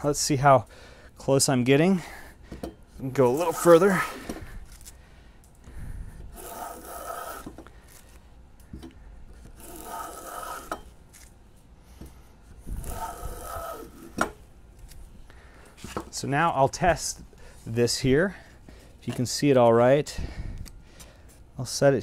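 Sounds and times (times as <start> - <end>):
plane rasping on wood: 6.4 - 7.6, 9.6 - 10.8, 12.8 - 14.2.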